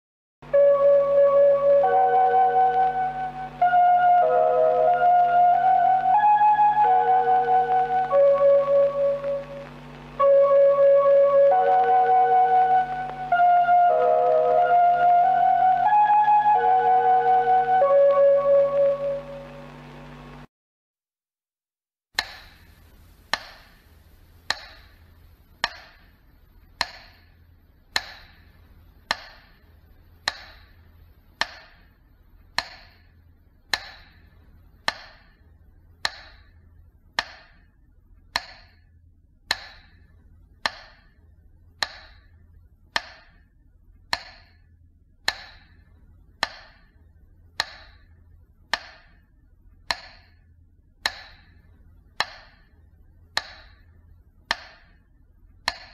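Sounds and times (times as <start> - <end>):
faint low hum: 0.4 - 20.5, 22.4 - 55.9
metronome ticking: 24.4 - 24.9, 25.6 - 26.1, 26.8 - 27.2, 27.9 - 28.4, 29.1 - 29.6, 30.2 - 30.8, 31.4 - 31.8, 32.6 - 33.1, 33.7 - 35.4, 36.0 - 36.5, 37.2 - 37.6, 38.3 - 38.8, 39.5 - 41.2, 41.8 - 42.3, 42.9 - 43.4, 44.1 - 47.0, 47.6 - 48.1, 48.7 - 49.2, 49.9 - 50.4, 51.0 - 51.6, 52.2 - 52.7, 53.3 - 53.8, 54.5 - 55.0, 55.6 - 55.9.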